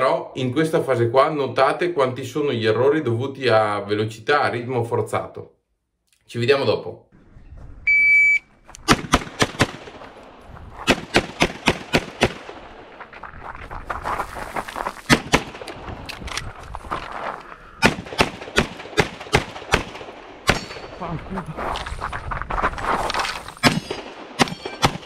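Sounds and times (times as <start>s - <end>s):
shot timer beep: 7.9s - 8.5s
pistol shots: 8.8s - 10.0s, 10.8s - 13.0s, 15.1s - 15.8s, 17.8s - 21.0s, 23.6s - 25.0s.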